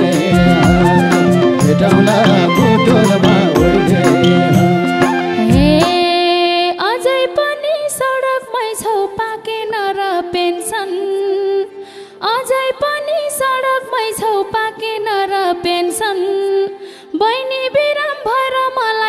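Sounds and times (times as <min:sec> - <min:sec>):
hand drum: 0:00.0 - 0:06.2
traditional band playing: 0:00.0 - 0:06.2
woman singing folk melody: 0:05.4 - 0:19.0.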